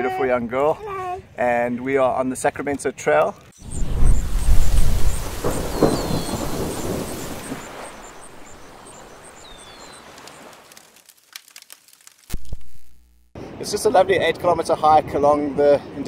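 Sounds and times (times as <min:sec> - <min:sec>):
rumbling whoosh: 0:03.6 - 0:08.4.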